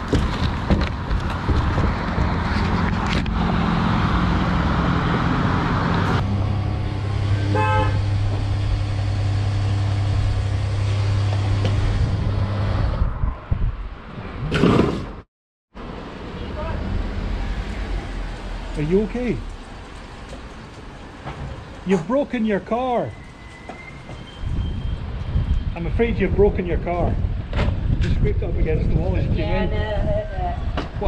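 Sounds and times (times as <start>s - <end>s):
short car horn toot: 7.4s - 8.1s.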